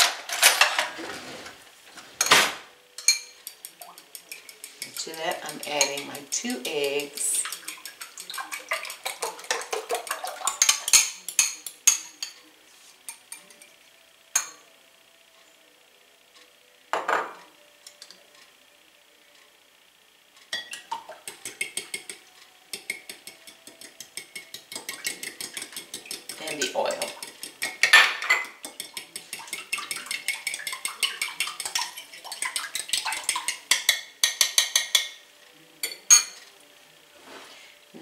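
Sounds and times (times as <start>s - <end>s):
fork beating in glass bowl: 3.0s - 12.1s, 20.6s - 35.2s.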